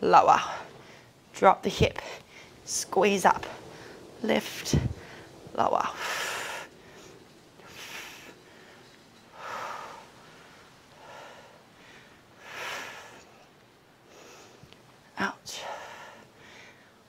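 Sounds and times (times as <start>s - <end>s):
woman breathing hard: 6.0s - 14.7s, 15.5s - 17.0s.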